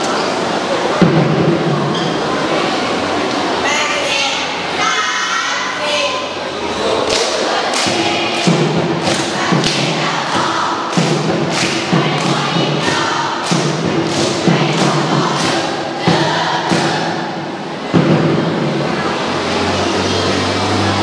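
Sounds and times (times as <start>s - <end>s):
steady percussive beat: 0.9s - 1.9s, 7.1s - 19.3s
students chanting in unison: 4.8s - 21.0s.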